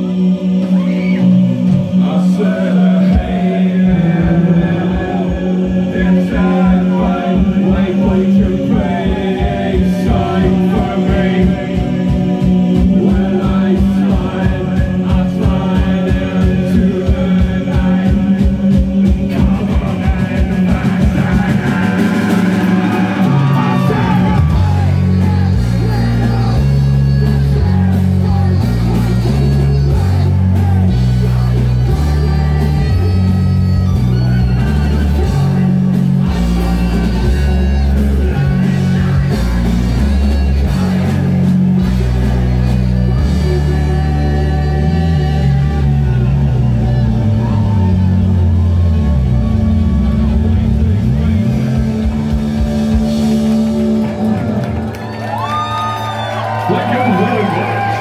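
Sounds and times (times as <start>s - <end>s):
man singing into microphone: 0.0s - 41.4s, 43.1s - 47.6s
heavy bass line: 0.0s - 58.0s
live rock band playing: 0.0s - 58.0s
fast pounding drum beat: 1.4s - 44.4s.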